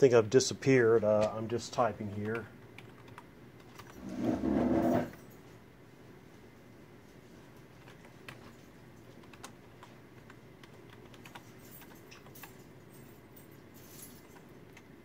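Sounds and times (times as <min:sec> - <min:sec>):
faint keyboard typing: 0:01.1 - 0:04.0, 0:07.4 - 0:12.9, 0:13.6 - 0:15.0.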